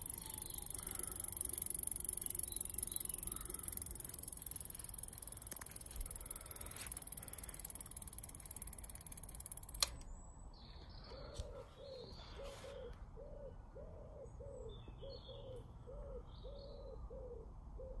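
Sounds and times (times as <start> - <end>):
bicycle hub freewheel ticking: 0.0 - 10.1
small birds chirping: 0.0 - 18.0
sharp click: 9.6 - 10.1
pigeon cooing: 11.1 - 18.0.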